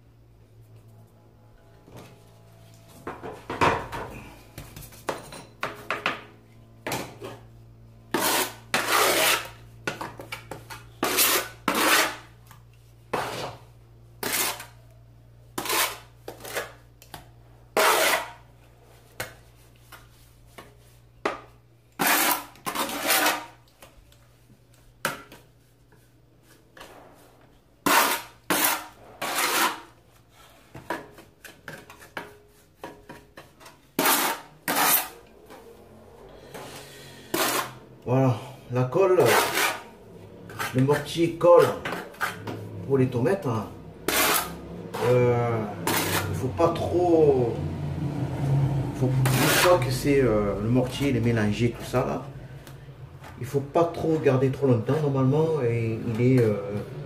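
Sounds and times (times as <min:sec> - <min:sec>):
trowel scraping mortar: 0:08.1 - 0:14.9, 0:15.5 - 0:16.8, 0:17.8 - 0:18.5, 0:22.0 - 0:23.7, 0:27.8 - 0:30.0, 0:31.1 - 0:35.6, 0:37.2 - 0:37.8, 0:39.1 - 0:47.1, 0:49.0 - 0:50.2.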